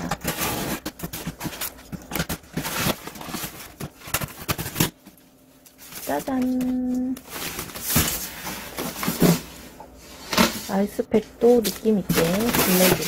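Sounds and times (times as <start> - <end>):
styrofoam scraping and knocking: 11.6 - 13.0.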